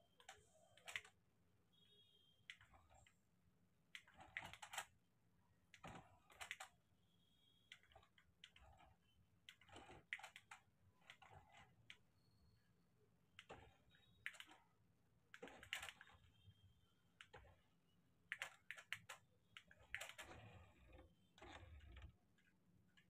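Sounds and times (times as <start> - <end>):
toy car plastic clicking: 0.2 - 1.2, 9.5 - 12.0, 15.3 - 16.2, 18.3 - 22.2.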